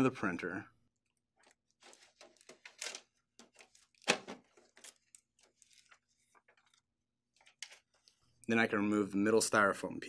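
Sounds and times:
paper rustling and scraping: 0:01.4 - 0:08.4.

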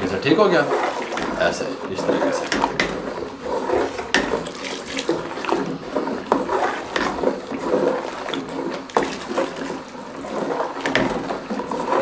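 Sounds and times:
liquid swishing and sloshing: 0:00.0 - 0:12.0
ladle knocking against pot: 0:02.4 - 0:03.2, 0:04.0 - 0:05.5, 0:10.8 - 0:11.6.

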